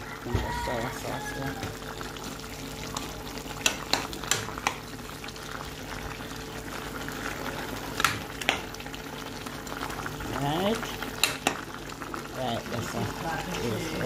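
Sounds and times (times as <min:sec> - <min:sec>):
stew bubbling in a pot: 0:00.0 - 0:14.0.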